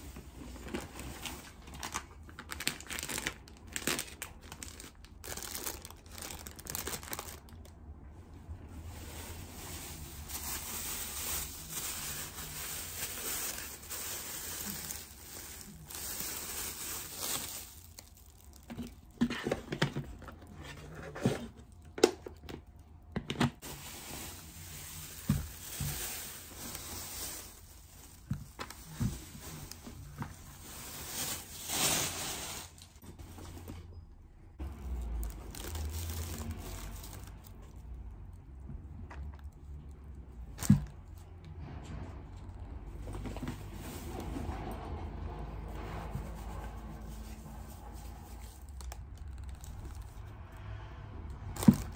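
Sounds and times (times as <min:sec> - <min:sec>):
plastic bags crinkling: 0:00.4 - 0:08.0, 0:08.6 - 0:19.2, 0:23.6 - 0:33.0, 0:34.6 - 0:38.3, 0:47.1 - 0:50.4, 0:51.4 - 0:51.9.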